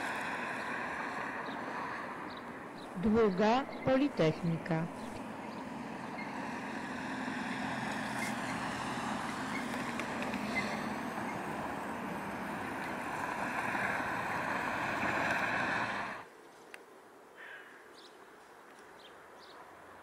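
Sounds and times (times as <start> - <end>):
road traffic noise: 0.0 - 16.3.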